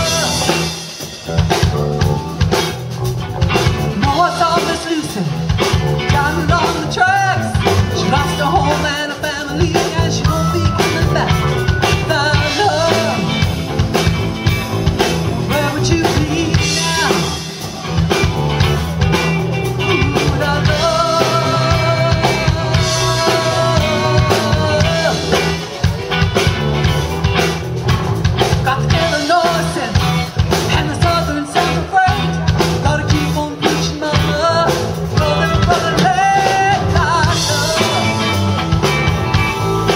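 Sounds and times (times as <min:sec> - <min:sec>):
drum kit beat: 0:00.0 - 0:39.9
electric guitar: 0:00.0 - 0:39.9
keyboards: 0:00.0 - 0:39.9.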